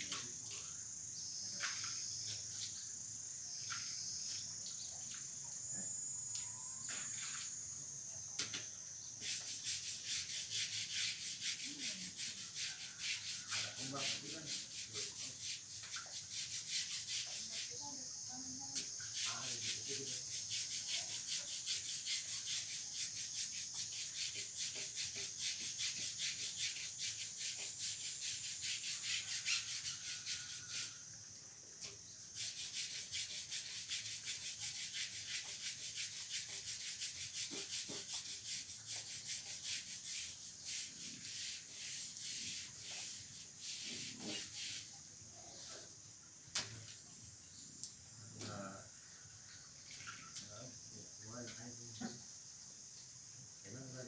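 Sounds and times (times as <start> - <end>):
scratchy hand scrubbing: 9.2 - 17.8, 19.0 - 31.0, 32.4 - 44.9.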